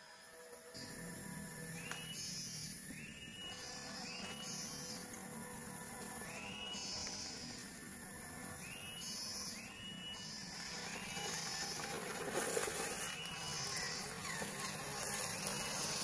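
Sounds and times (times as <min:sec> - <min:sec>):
electric motor whine: 0:00.0 - 0:16.0.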